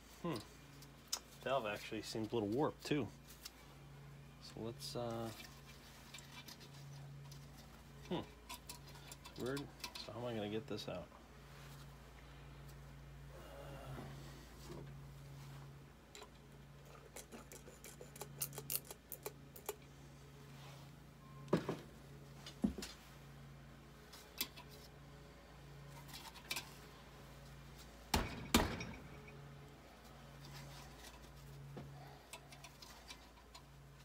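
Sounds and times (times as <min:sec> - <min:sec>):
sharp knocks: 0:28.1 - 0:29.0.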